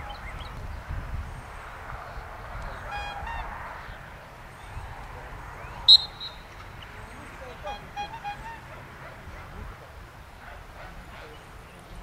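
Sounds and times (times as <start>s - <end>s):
wind rumble on microphone: 0.0s - 12.0s
two-note honk: 2.6s - 3.9s, 7.4s - 8.9s.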